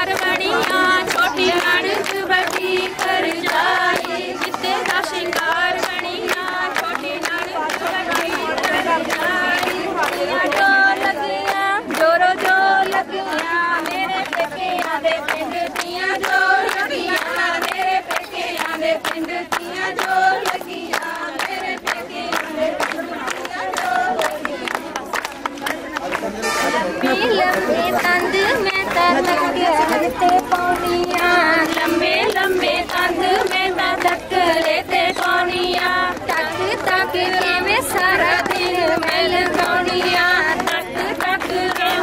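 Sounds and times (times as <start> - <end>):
women singing folk song: 0.0 - 25.9, 27.0 - 42.0
handclaps: 0.0 - 42.0.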